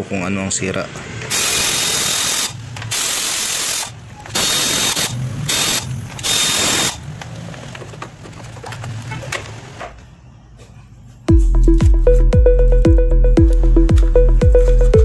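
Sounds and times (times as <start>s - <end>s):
air ratchet bursts: 1.3s - 7.0s.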